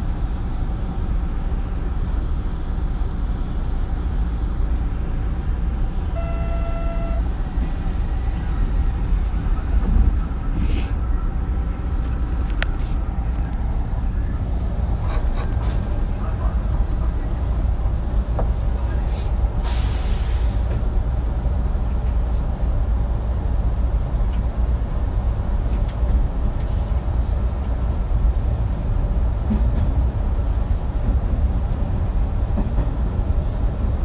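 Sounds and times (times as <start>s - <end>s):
train wheels rumbling on rails: 0.0s - 34.0s
short tone: 6.1s - 7.3s.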